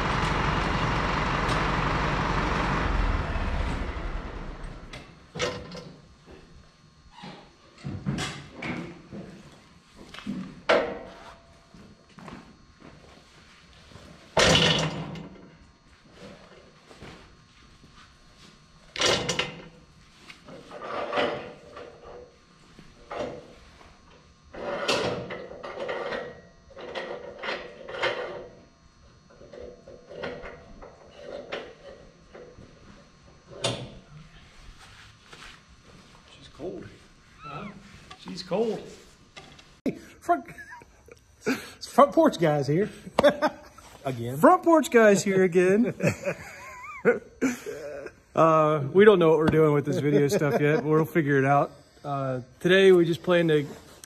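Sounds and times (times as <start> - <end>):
tractor engine running: 0.0 - 5.2.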